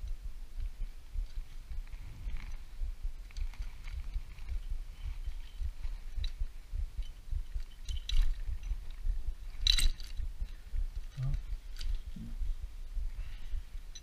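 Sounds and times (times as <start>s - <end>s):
low handling rumble: 0.0s - 14.0s
metal clicks and clinks: 7.0s - 12.2s.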